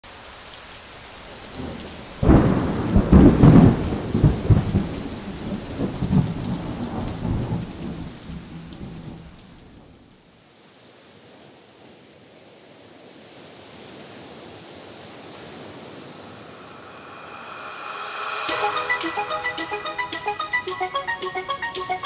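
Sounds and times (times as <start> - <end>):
steady hiss: 15.6 - 22.0
loud rumbling crash: 16.0 - 18.5.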